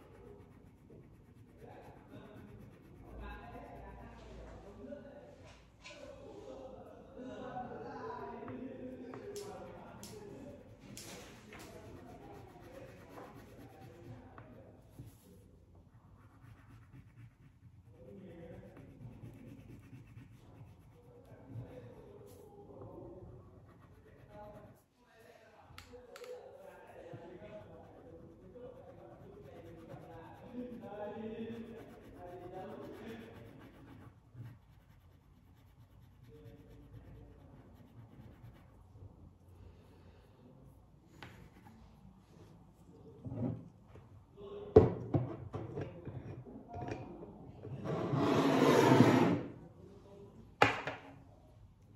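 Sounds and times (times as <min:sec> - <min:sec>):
crayon scratching on paper: 0:00.0 - 0:04.0, 0:09.4 - 0:15.4, 0:16.0 - 0:22.4, 0:23.0 - 0:24.8, 0:27.2 - 0:38.9.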